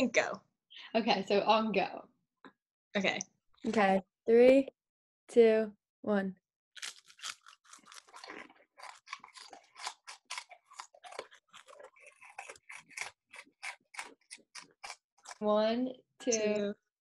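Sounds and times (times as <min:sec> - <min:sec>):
crackers being chewed: 0:06.8 - 0:15.4.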